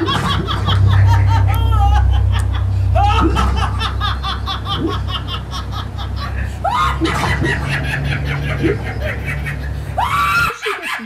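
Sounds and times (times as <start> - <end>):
steady low hum: 0.0 - 10.6
woman laughing hard: 0.0 - 11.0.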